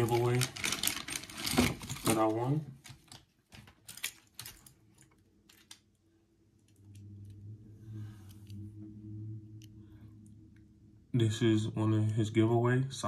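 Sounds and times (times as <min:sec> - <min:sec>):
small items clicking and tapping: 0:02.8 - 0:06.0
low steady hum: 0:03.6 - 0:13.0.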